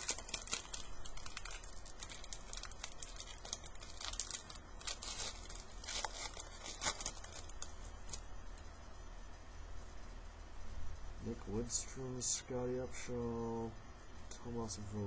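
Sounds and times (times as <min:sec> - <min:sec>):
trading cards flicking and rustling: 0:00.0 - 0:08.3.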